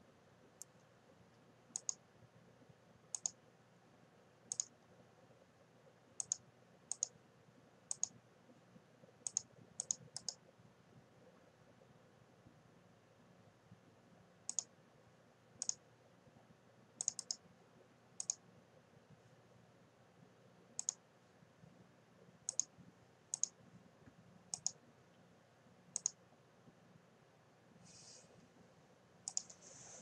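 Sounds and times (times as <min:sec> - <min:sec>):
faint low hum: 0:00.0 - 0:30.0
computer mouse button clicks: 0:26.0 - 0:26.2, 0:29.3 - 0:29.6.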